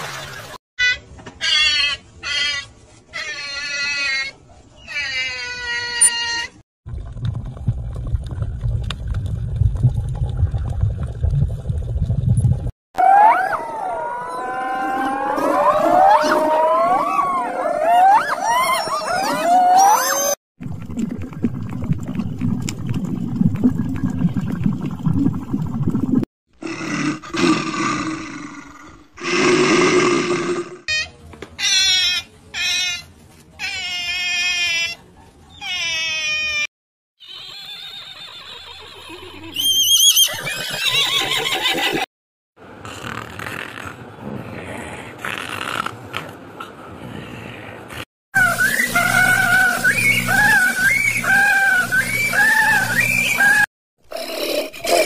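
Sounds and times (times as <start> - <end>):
underwater rumble of moving water: 6.9 - 12.7, 20.6 - 26.2
animal deep rough roar: 26.6 - 30.9.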